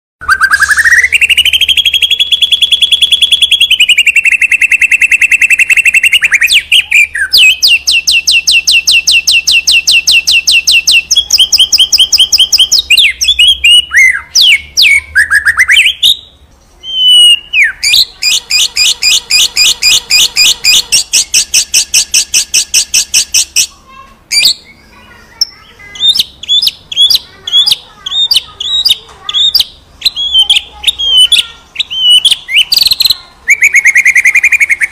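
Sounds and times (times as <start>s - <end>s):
bird singing fast high notes: 0.2s - 34.9s.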